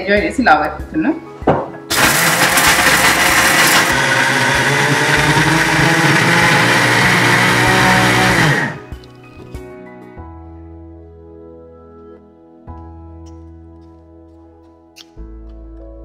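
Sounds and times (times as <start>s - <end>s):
motor winding down: 1.9s - 8.8s
mixer grinder grinding: 1.9s - 8.9s.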